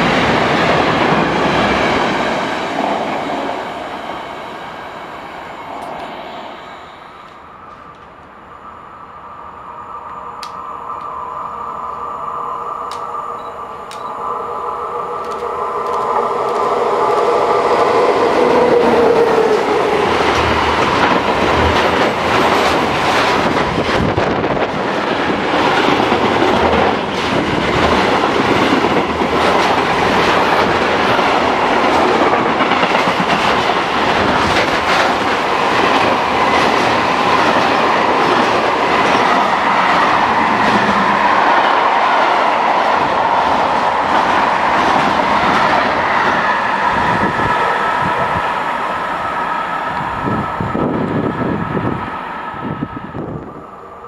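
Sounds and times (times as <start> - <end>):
freight train wagons rumbling: 12.9 - 48.8.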